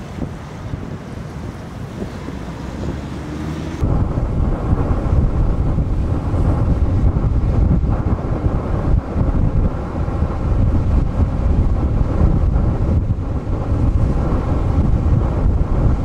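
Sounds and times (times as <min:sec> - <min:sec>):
storm waves breaking on shore: 0:00.0 - 0:16.0
wind buffeting microphone: 0:00.0 - 0:16.0.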